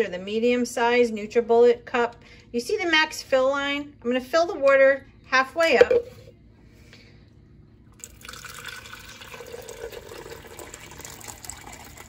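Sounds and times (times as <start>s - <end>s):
water pouring into plastic cup: 8.0s - 12.0s.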